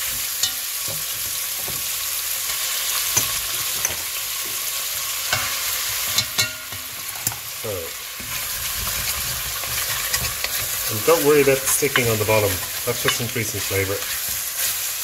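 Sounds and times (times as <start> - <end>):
meat sizzling in oil: 0.0 - 15.0
spoon scraping pot: 8.2 - 14.8.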